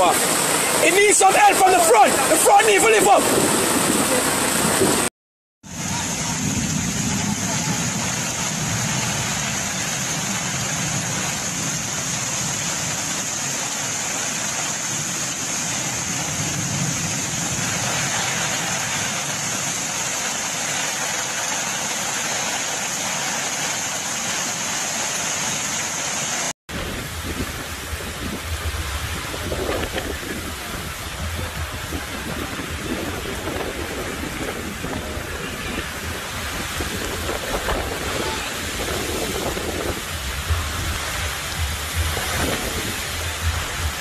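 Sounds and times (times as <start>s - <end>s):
rushing floodwater: 0.0s - 5.1s, 5.7s - 44.0s
heavy rain: 0.0s - 44.0s
low rumble: 26.8s - 44.0s.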